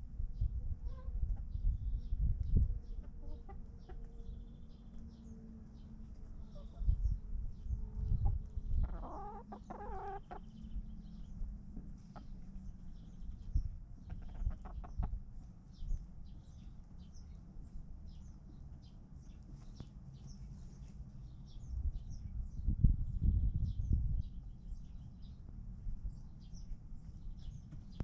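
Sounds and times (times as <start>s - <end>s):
chickens clucking: 2.8s - 4.1s, 6.1s - 7.0s, 8.0s - 10.8s, 14.0s - 15.2s.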